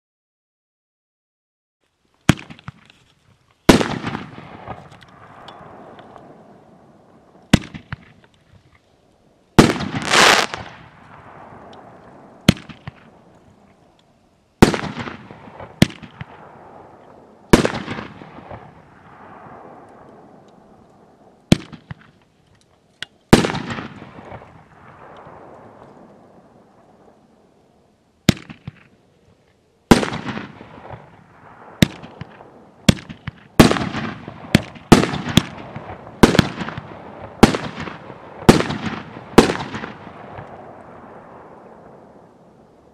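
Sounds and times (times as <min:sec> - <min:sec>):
firework bangs with crackling tails: 0:02.3 - 0:02.8, 0:03.7 - 0:08.2, 0:09.6 - 0:13.3, 0:14.6 - 0:20.4, 0:21.0 - 0:22.2, 0:23.3 - 0:27.2, 0:28.2 - 0:28.9, 0:29.9 - 0:42.3.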